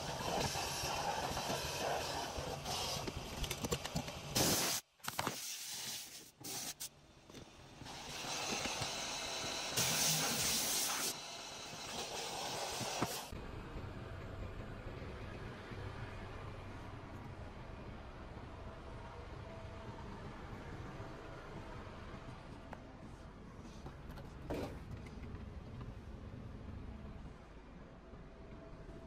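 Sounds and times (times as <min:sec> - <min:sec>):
steam cleaner hissing: 0:00.0 - 0:03.0, 0:04.4 - 0:06.9, 0:07.8 - 0:13.3.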